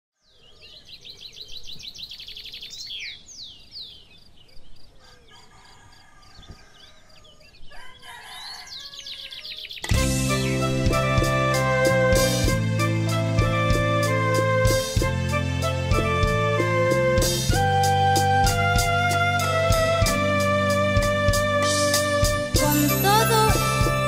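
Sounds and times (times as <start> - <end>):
small birds chirping: 0.2 - 10.7
music: 9.8 - 24.0.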